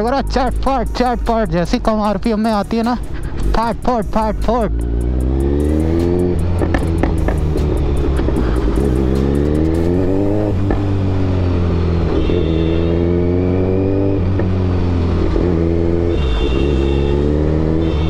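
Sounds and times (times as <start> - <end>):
motorcycle engine accelerating: 4.2 - 18.0
exhaust pops and crackles: 6.6 - 9.0, 10.6 - 10.9.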